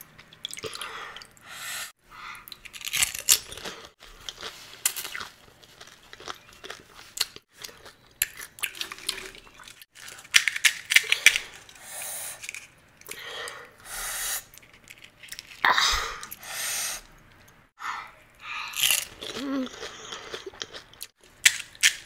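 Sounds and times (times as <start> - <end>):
crisp shells crunching being chewed: 2.4 - 11.8, 14.5 - 15.6, 18.7 - 22.0.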